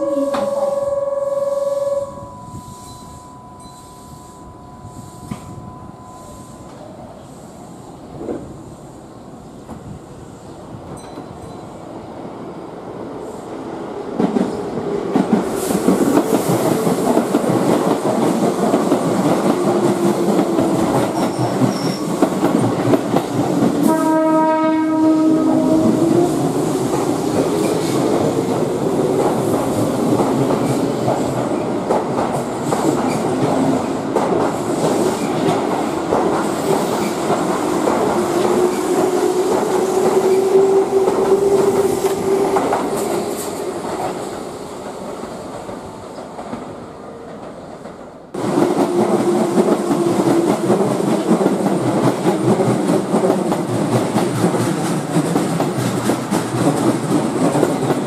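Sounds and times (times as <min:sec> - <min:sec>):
train horn: 0:00.0 - 0:03.0, 0:23.8 - 0:26.8
train wheels clattering over rail joints: 0:14.2 - 0:23.9, 0:47.4 - 0:58.0.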